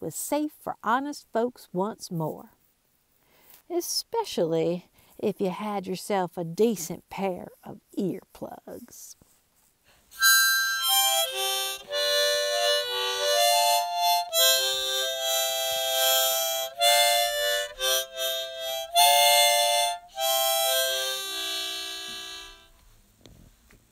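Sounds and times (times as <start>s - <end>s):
harmonica playing: 10.1s - 22.8s.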